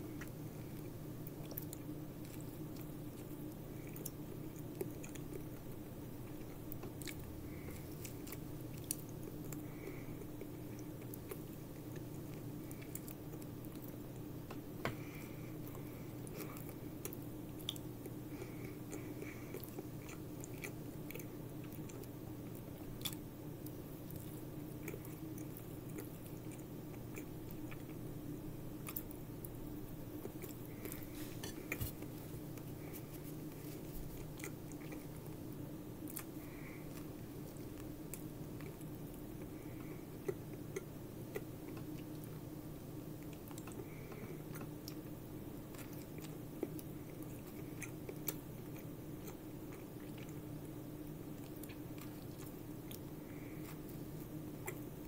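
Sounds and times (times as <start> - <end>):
person chewing: 0.1 - 14.3, 15.0 - 28.0, 28.7 - 42.4, 43.2 - 50.7, 51.3 - 55.0.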